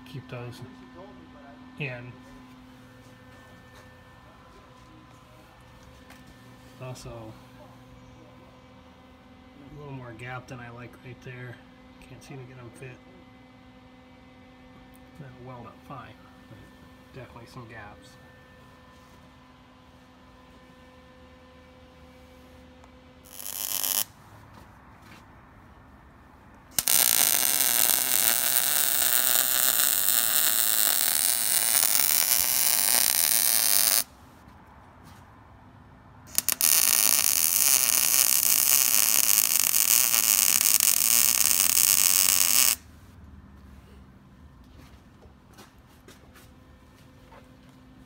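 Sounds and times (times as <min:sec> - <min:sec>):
arc welding crackling hiss: 0:23.3 - 0:24.1, 0:26.7 - 0:34.1, 0:36.3 - 0:42.8.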